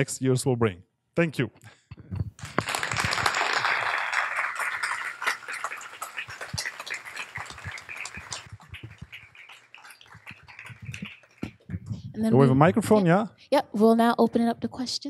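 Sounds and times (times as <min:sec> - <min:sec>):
audience applauding: 0:02.4 - 0:11.7.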